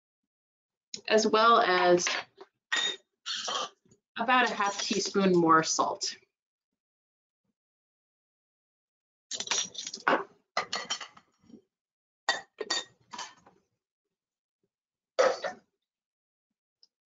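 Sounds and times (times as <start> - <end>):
metal utensils and dishes clinking: 4.4 - 5.3.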